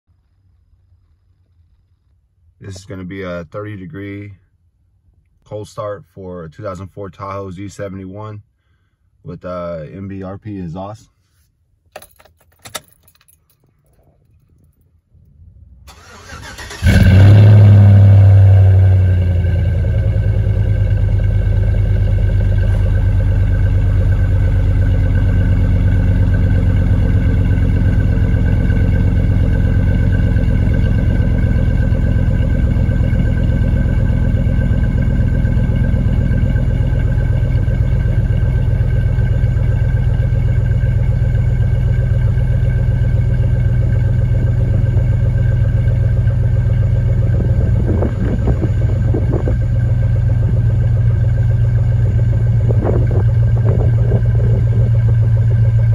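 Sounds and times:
car engine starting and idling: 11.8s - 55.9s.

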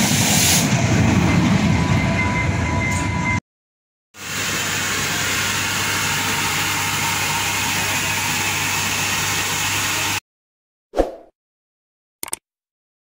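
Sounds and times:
steam locomotive hiss: 0.0s - 1.0s, 4.2s - 10.2s.

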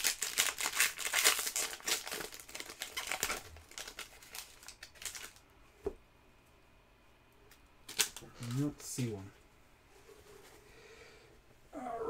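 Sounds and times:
foil wrapper crinkling: 0.0s - 5.4s, 7.9s - 8.7s.

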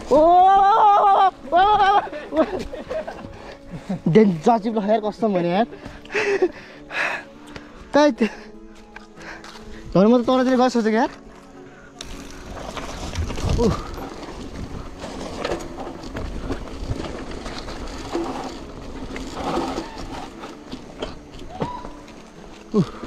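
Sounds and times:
bike tyres on dirt trail: 0.0s - 23.0s
bike knocking and rattling: 12.0s - 23.0s.

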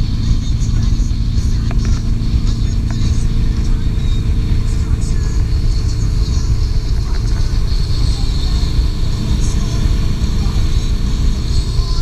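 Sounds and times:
hiss of churning wake: 0.0s - 12.0s
motorboat engine rumble: 0.0s - 12.0s
wind on microphone: 0.0s - 12.0s.

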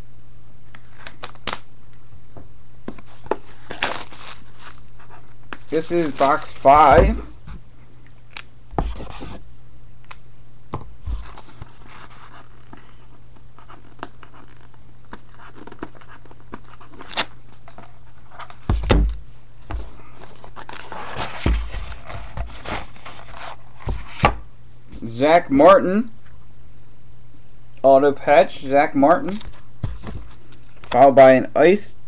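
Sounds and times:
steady low hum: 0.0s - 32.0s
cards being handled: 0.7s - 1.6s, 2.9s - 7.5s, 11.1s - 13.0s, 13.6s - 24.3s, 29.2s - 31.0s.

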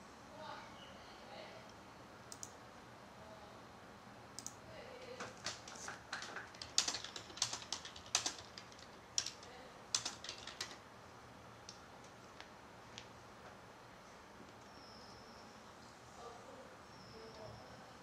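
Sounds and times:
light clicks: 2.3s - 2.6s, 4.4s - 4.6s.

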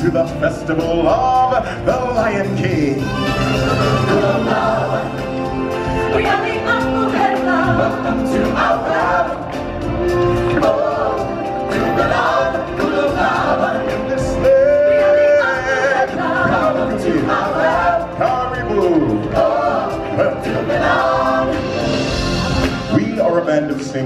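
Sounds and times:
musical backing: 0.0s - 24.0s
group singing in harmony: 1.0s - 23.0s.

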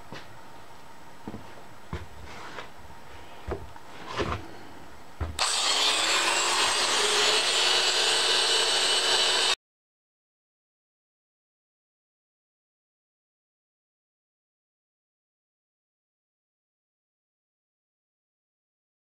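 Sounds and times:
electric die grinder on steel: 5.4s - 9.6s.

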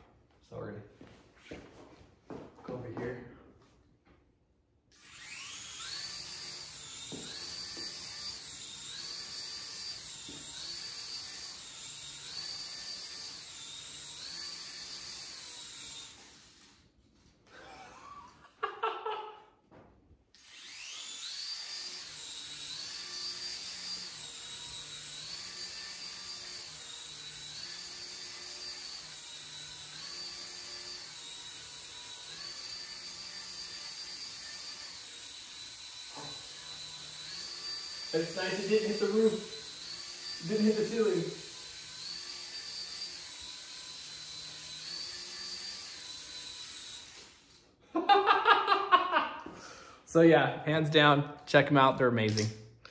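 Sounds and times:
toy propeller motors whining: 4.9s - 18.1s, 20.3s - 48.2s.

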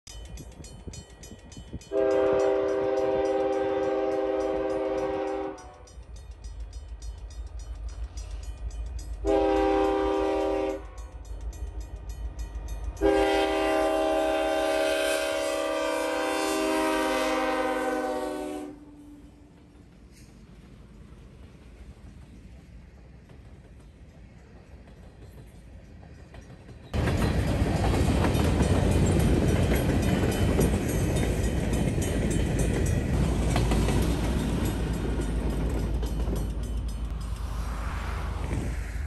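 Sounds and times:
train rumbling: 0.1s - 39.0s
locomotive air horn blasts: 1.9s - 5.9s, 9.2s - 11.1s, 13.0s - 19.3s.

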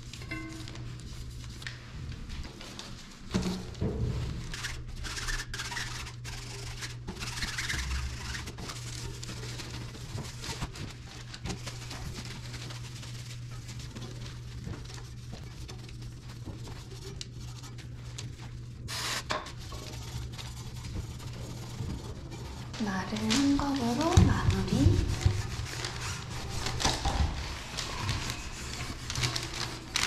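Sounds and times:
steady low hum: 0.0s - 30.0s
gloved hands scrubbing bicycle wheel: 4.3s - 30.0s.

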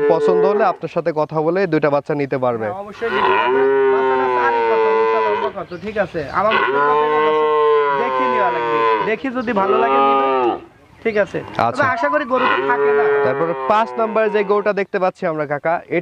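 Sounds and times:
cattle mooing: 0.0s - 0.8s, 3.0s - 5.6s, 6.4s - 14.7s.

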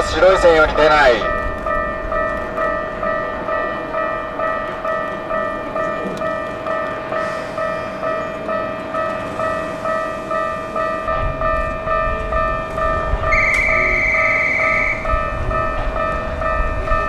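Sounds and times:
level-crossing warning bell ringing: 0.0s - 17.0s.

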